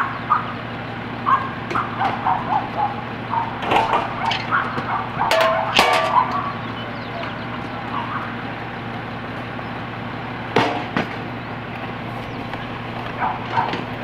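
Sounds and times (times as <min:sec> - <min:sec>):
diesel engine idling: 0:00.0 - 0:14.0
sharp knocks: 0:10.6 - 0:11.2.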